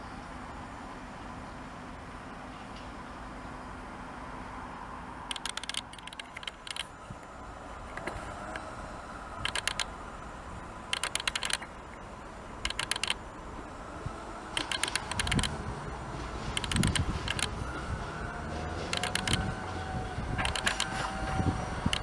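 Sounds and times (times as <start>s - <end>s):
low diesel engine rumble: 0.0s - 22.0s
train wheels clicking over joints: 5.3s - 6.9s, 9.4s - 9.9s, 10.9s - 11.8s, 12.6s - 13.2s, 14.5s - 22.0s.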